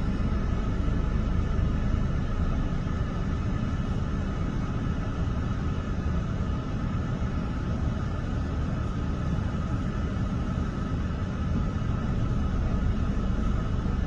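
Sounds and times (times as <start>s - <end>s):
diesel truck engine idling: 0.0s - 14.0s.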